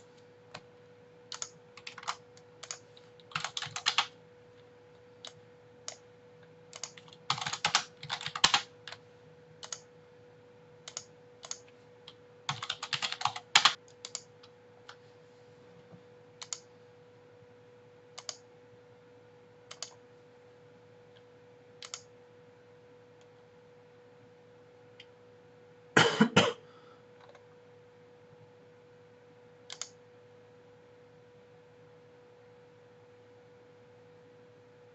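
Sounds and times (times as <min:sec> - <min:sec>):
faint steady hum: 0:00.0 - 0:34.9
computer keyboard typing: 0:01.3 - 0:04.2, 0:06.7 - 0:09.0, 0:09.6 - 0:09.9, 0:10.8 - 0:15.0, 0:16.4 - 0:16.7, 0:18.2 - 0:18.4, 0:19.7 - 0:20.0, 0:21.8 - 0:22.1, 0:29.7 - 0:30.0.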